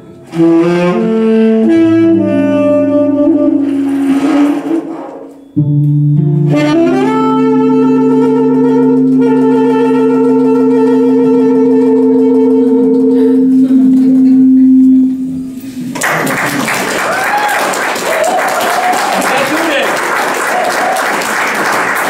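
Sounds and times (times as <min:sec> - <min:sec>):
tenor saxophone: 0:00.0 - 0:15.9
jazz guitar accompaniment: 0:00.0 - 0:16.7
audience applause: 0:16.0 - 0:22.0.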